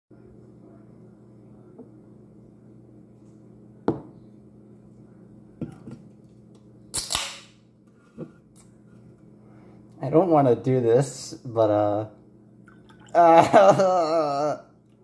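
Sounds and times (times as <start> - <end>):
can knocking on a table: 3.9 - 4.1.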